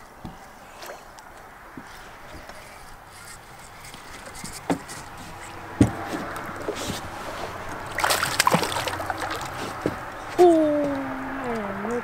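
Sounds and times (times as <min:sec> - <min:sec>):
water sloshing and splashing: 0:01.8 - 0:10.4
knocks on boat: 0:05.8 - 0:06.3.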